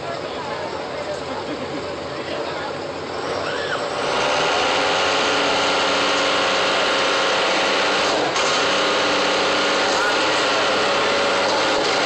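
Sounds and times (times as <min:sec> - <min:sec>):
diesel engine revving high: 0:02.9 - 0:12.0.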